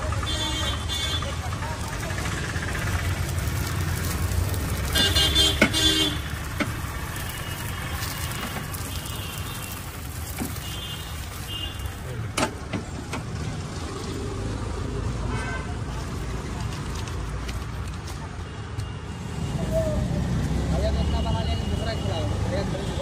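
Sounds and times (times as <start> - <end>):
street traffic rumble: 0.0 - 23.0
vehicle horn tooting: 0.2 - 1.4, 4.9 - 6.4, 7.2 - 12.0.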